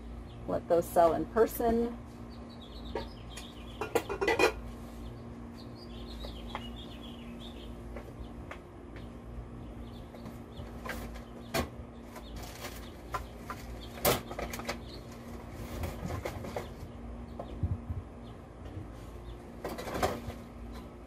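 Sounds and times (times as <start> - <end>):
wind rumble on microphone: 15.7 - 18.4.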